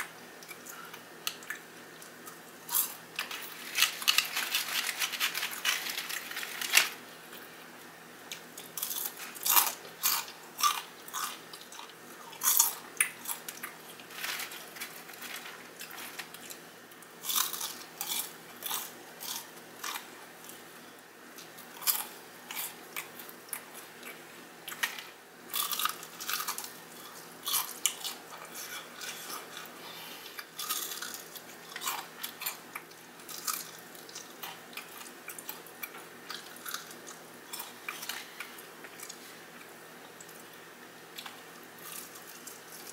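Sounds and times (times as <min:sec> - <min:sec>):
crunching fried chicken: 0:02.1 - 0:07.4, 0:08.4 - 0:20.6, 0:21.4 - 0:29.7, 0:30.4 - 0:39.6
quiet chewing: 0:25.6 - 0:42.9.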